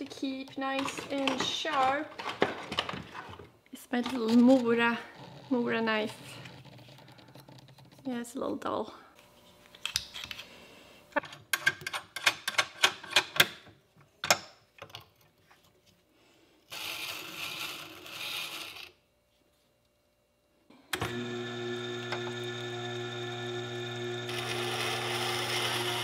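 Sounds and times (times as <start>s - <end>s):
sharpener motor humming: 21.0s - 26.0s.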